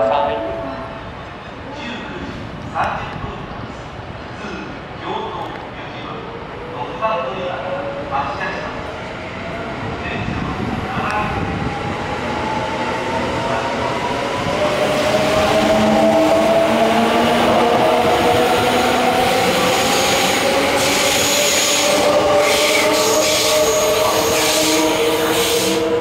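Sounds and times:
electric train accelerating: 8.8 - 26.0.

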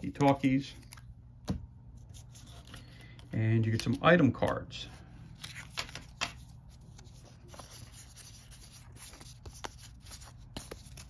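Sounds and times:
cardboard cards rubbing and clicking: 5.4 - 11.0.

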